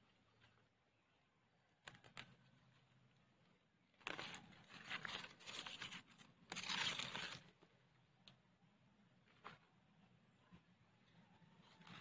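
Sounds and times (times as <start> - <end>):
faint plant rustles: 1.8 - 7.8, 9.2 - 12.0.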